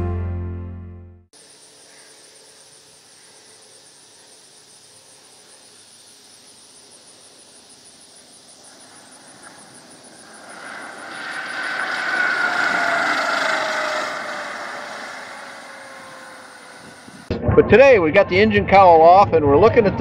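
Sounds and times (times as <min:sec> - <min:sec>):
light aircraft engine and propeller: 0:01.4 - 0:17.3.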